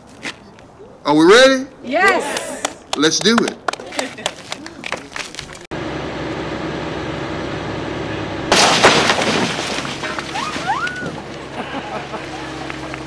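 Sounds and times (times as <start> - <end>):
excavator diesel engine running: 5.7 - 13.0
building crashing: 8.3 - 13.0
debris breaking and falling: 8.5 - 11.6.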